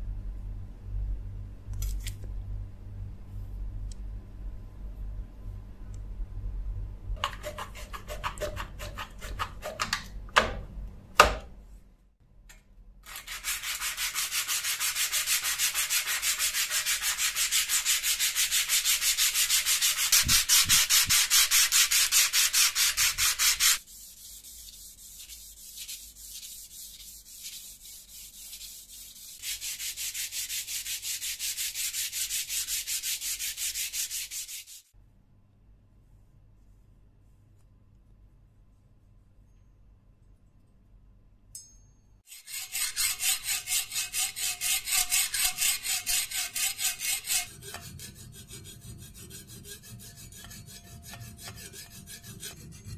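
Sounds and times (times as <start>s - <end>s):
sandpaper rubbing on knife blade: 7.2s - 9.8s, 13.1s - 34.9s, 42.3s - 52.9s.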